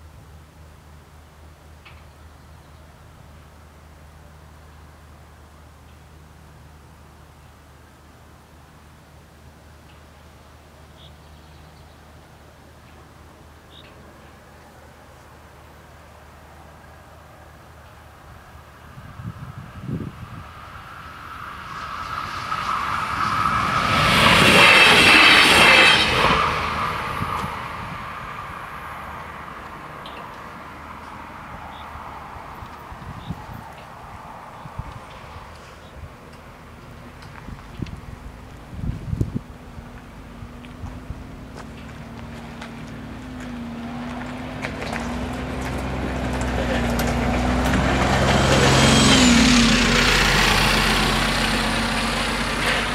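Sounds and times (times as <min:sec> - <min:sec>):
tyre and road noise: 0:00.0 - 0:52.9
diesel train passing: 0:12.1 - 0:52.9.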